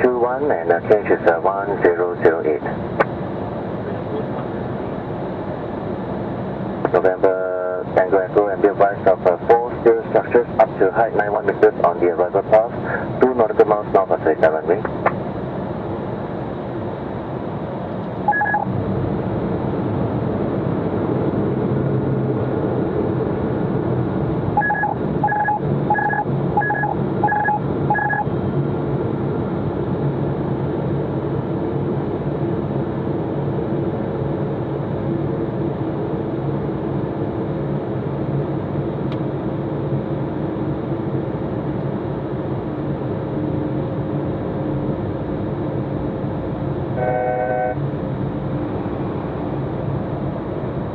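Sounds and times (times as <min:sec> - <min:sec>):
jet cockpit hum: 0:00.0 - 0:50.9
short electronic beeps: 0:18.3 - 0:18.7, 0:24.6 - 0:28.3.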